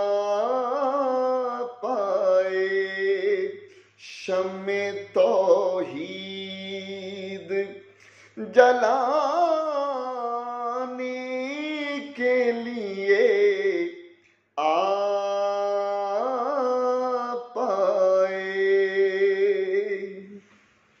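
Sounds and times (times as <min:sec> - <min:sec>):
man singing unaccompanied: 0:00.0 - 0:20.4.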